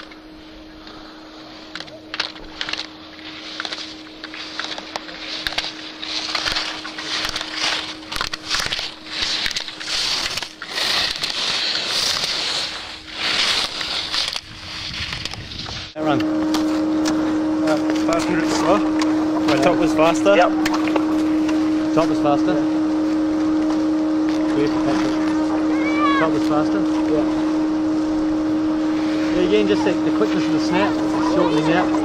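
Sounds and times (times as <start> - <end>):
skis carving on hard snow: 0.8 - 16.8, 28.9 - 32.0.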